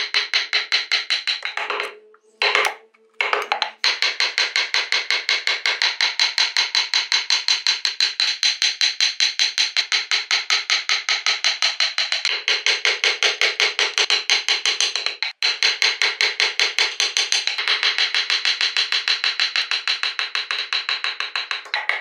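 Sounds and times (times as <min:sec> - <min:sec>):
mallet tapping carving gouge: 0:00.0 - 0:06.8.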